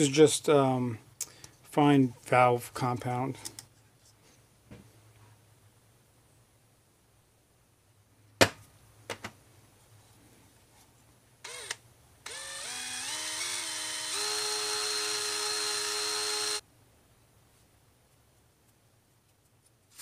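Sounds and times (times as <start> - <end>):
cordless drill whirring: 11.4 - 16.6.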